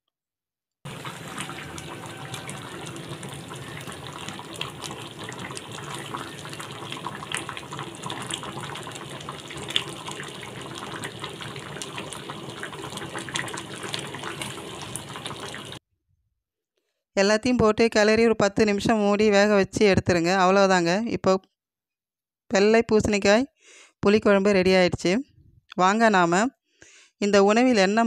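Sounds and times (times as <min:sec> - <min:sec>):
thick gravy bubbling and popping: 0:00.9 - 0:15.8.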